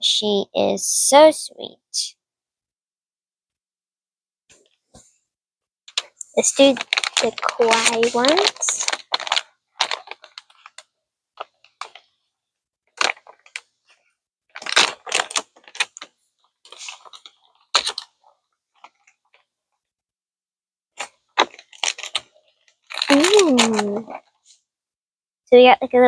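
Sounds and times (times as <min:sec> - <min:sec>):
foil bag crinkling and tearing: 0:06.4 - 0:10.8, 0:13.0 - 0:13.6, 0:14.5 - 0:16.1, 0:22.9 - 0:24.0.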